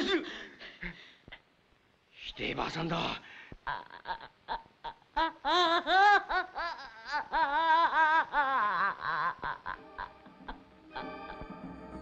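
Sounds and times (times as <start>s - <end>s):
young woman laughing: 8.3s - 11.4s.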